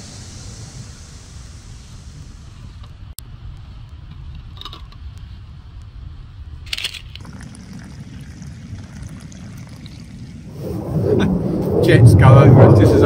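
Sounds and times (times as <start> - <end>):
steady low rumble: 0.0 - 13.0
hot water pouring into mug: 7.2 - 10.5.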